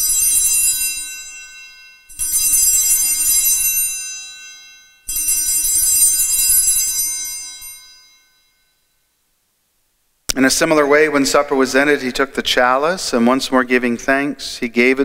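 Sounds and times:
altar bells jangling: 0:00.0 - 0:09.0.

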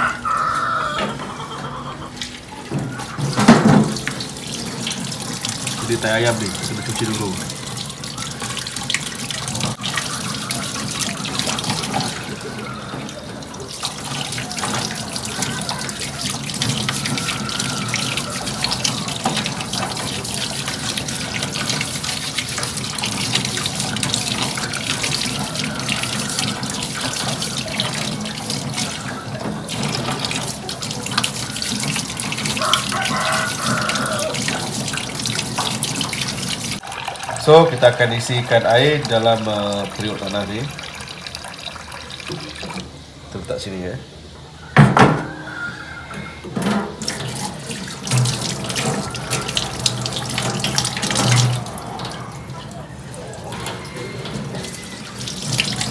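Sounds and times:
eggs being scrubbed by hand: 0:01.7 - 0:36.8.

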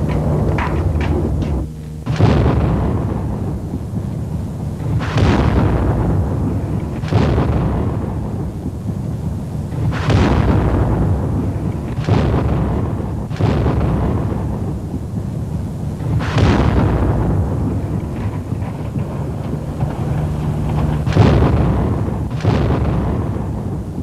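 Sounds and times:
long low rumble: 0:00.0 - 0:09.5, 0:15.8 - 0:23.8
artillery shells exploding: 0:00.0 - 0:24.0.

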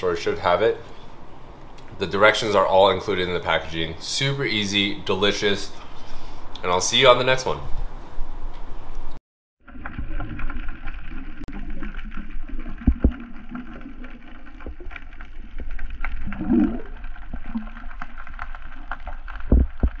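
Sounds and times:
muffled underwater bubbling: 0:11.2 - 0:20.0.

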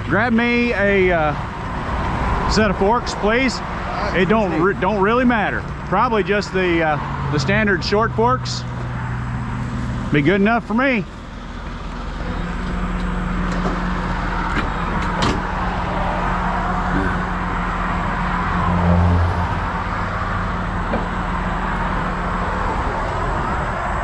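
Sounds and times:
passing traffic tyre noise: 0:00.0 - 0:24.0.

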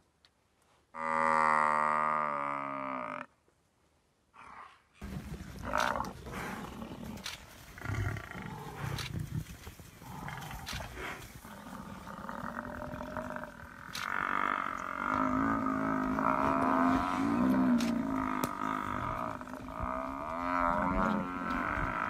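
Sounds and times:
lions growling and roaring: 0:04.4 - 0:22.0
sharp clicks: 0:13.8 - 0:14.9.

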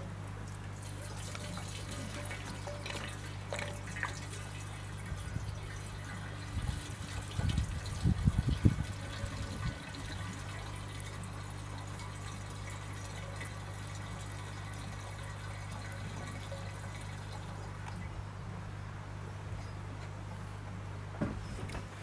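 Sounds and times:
steady low hum: 0:00.0 - 0:22.0
liquid running from a hose: 0:00.5 - 0:18.0.

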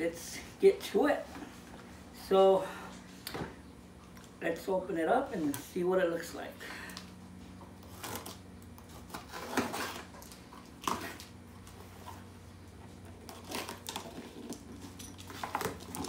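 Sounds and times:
steady low hum: 0:00.0 - 0:16.0
knife slitting packing tape: 0:07.8 - 0:10.1.

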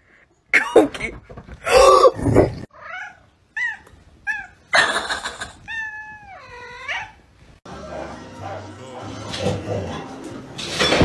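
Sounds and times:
cat meowing: 0:05.2 - 0:07.2.

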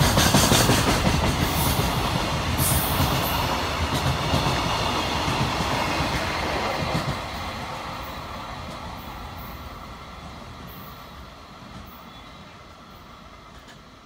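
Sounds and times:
freight train wagons rolling past: 0:00.0 - 0:14.0.

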